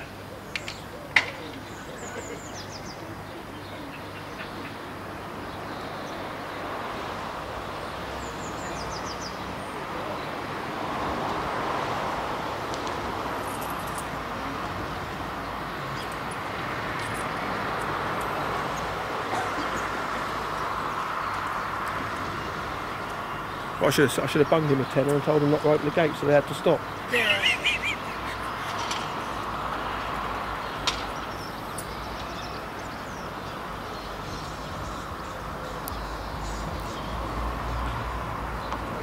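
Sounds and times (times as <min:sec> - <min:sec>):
distant traffic rumble: 0:00.0 - 0:39.0
bird chirps: 0:26.9 - 0:29.4.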